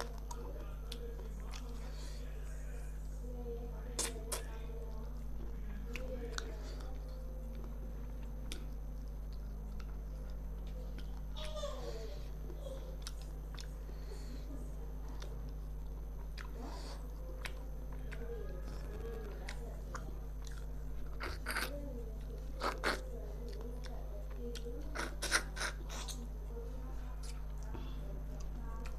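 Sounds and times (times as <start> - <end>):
low electrical hum: 0.0 - 28.9
crunching and mouth clicks: 5.9 - 11.3, 13.0 - 13.8, 15.0 - 16.6, 17.4 - 21.7, 22.3 - 26.3, 27.2 - 27.7.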